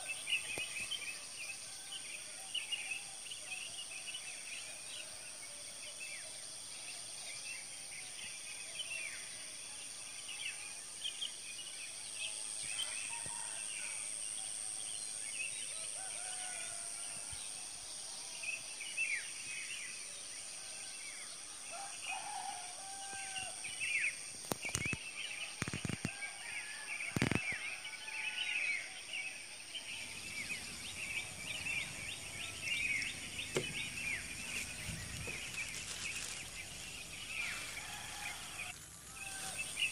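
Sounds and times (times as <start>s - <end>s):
small birds chirping and trilling: 21.4s - 39.9s.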